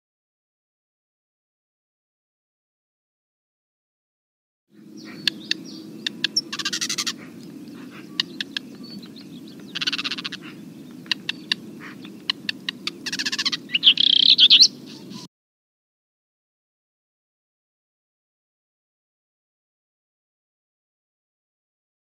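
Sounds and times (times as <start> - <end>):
bird singing: 4.7 - 15.3
bird ticks: 5.0 - 14.7.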